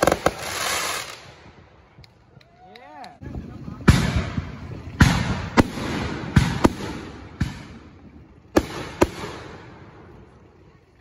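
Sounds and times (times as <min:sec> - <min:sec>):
fireworks bangs with echoing rumble: 0:00.0 - 0:01.7, 0:03.7 - 0:10.2.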